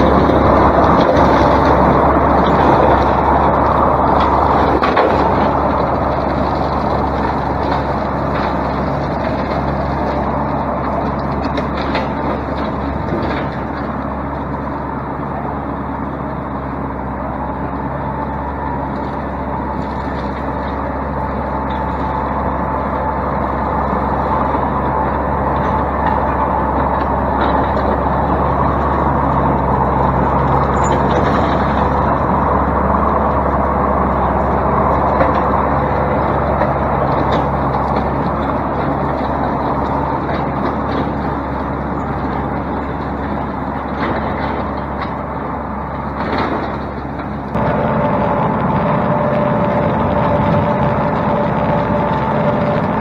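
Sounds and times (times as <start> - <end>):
tractor diesel engine running: 0.0 - 53.0.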